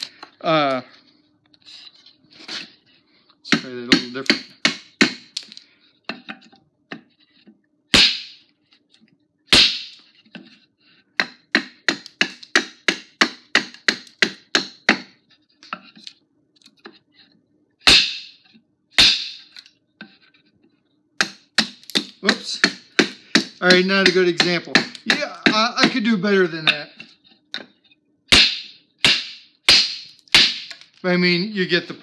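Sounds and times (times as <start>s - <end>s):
tomahawk chopping wood: 8.0s - 8.4s, 9.5s - 10.0s, 11.2s - 15.1s, 17.9s - 18.4s, 19.0s - 19.4s, 21.2s - 26.1s, 28.3s - 30.8s.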